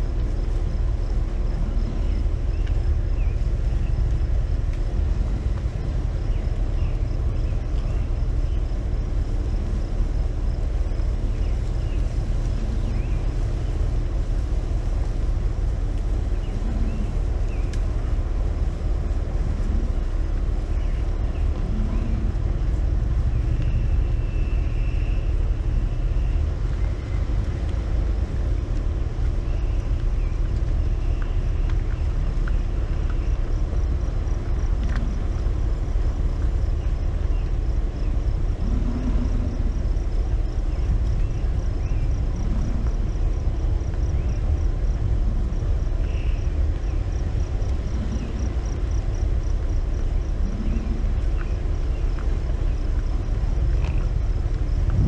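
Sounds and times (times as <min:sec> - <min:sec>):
vehicle engine idling: 0:00.0 - 0:55.0
bison grunting: 0:20.9 - 0:22.7, 0:38.4 - 0:40.0.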